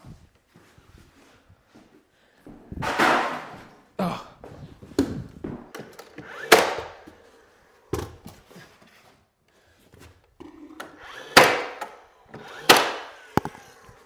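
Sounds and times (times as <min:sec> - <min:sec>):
nailer firing nails: 0:02.8 - 0:03.6, 0:05.8 - 0:07.1, 0:10.8 - 0:13.6.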